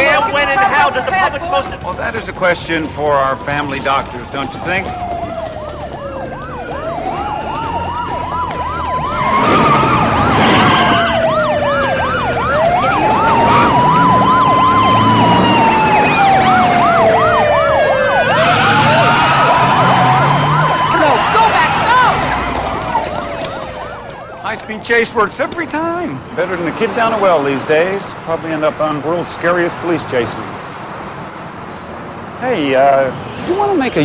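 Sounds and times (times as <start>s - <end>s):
police siren yelping: 0.0s - 25.9s
police siren wailing: 0.0s - 29.6s
vehicle noise: 0.0s - 34.0s.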